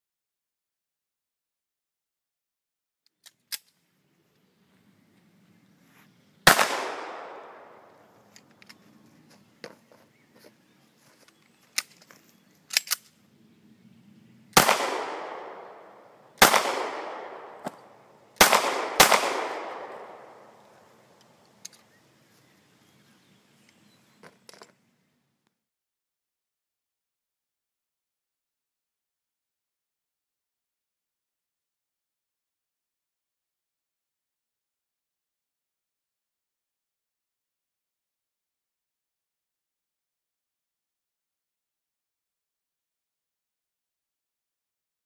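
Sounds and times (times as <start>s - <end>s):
pistol shots echoing: 6.5s - 8.0s, 14.6s - 20.9s.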